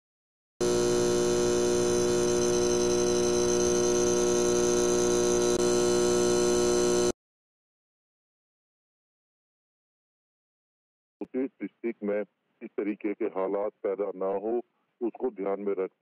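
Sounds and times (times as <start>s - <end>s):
neon sign electrical hum: 0.6s - 7.1s.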